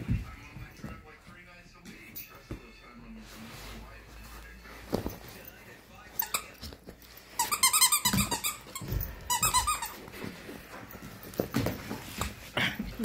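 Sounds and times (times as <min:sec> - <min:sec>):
squeaky dog toy squeaks: 0:06.2 - 0:06.5, 0:07.4 - 0:10.0.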